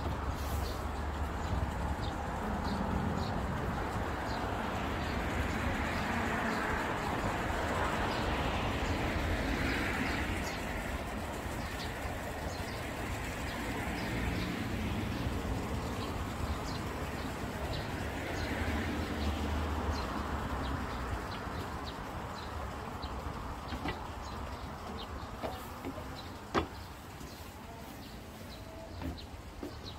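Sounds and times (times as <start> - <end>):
small birds chirping: 9.6 - 29.9.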